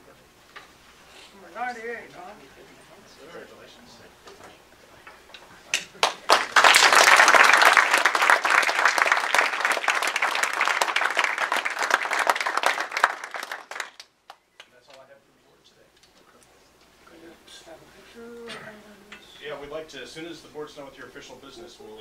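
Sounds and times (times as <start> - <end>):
small audience applauding: 5.7 - 15.0.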